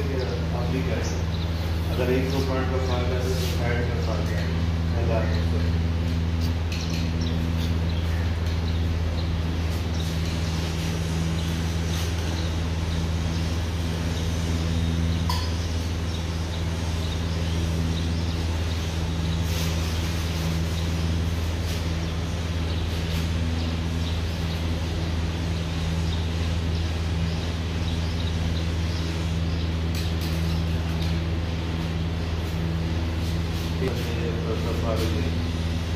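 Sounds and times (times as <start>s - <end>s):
low electric machine hum: 0.0s - 35.9s
light glassy clink: 15.3s - 15.6s.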